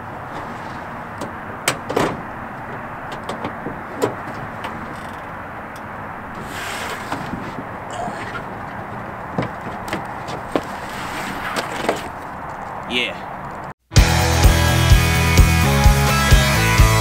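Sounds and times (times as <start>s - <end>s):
body sliding over truck bed: 0.0s - 5.4s, 6.1s - 12.4s
tailgate knocks: 1.2s - 5.3s, 6.3s - 10.7s.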